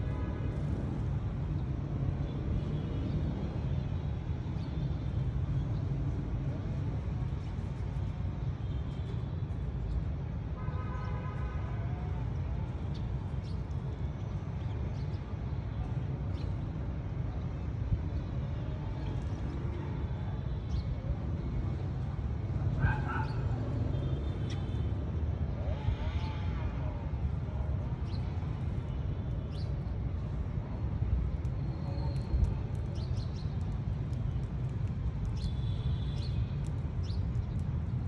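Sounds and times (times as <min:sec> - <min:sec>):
low rumble of town traffic: 0:00.0 - 0:38.0
sparrows chirping: 0:28.0 - 0:29.9, 0:32.1 - 0:34.5, 0:35.2 - 0:38.0.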